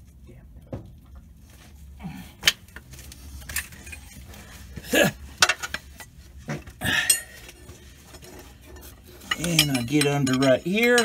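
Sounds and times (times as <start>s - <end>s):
metal clinks and knocks: 5.3s - 11.0s.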